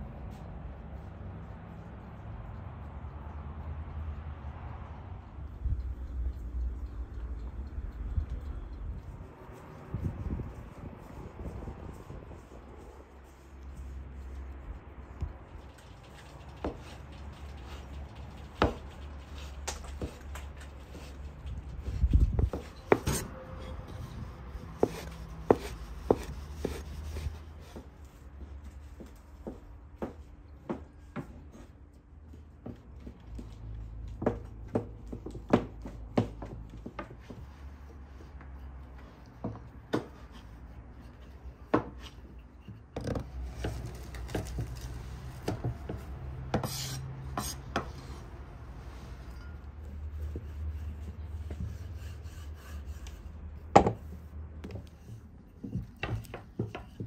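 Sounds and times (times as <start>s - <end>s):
rubbing and scraping: 5.4s - 57.0s.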